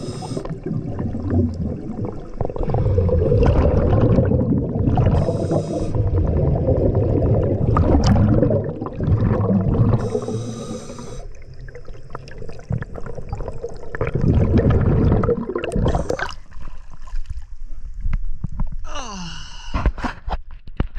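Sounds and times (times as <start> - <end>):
regulator hissing inhalation: 0.0 - 0.7, 5.1 - 6.1, 9.9 - 11.4
gurgling exhaled bubbles: 0.0 - 16.6.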